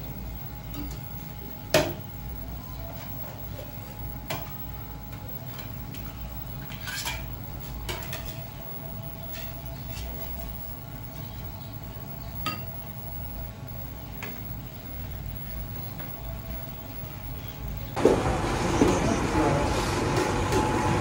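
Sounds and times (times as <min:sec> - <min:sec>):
low steady hum: 0:00.0 - 0:21.0
dishes and utensils clinking: 0:06.6 - 0:08.6.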